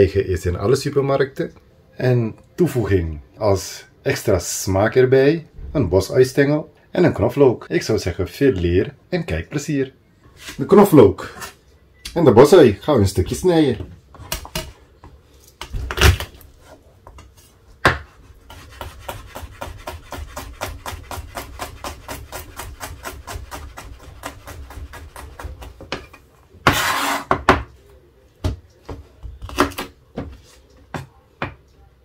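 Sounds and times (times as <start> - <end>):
knife chopping on cutting board: 17.8 - 27.7.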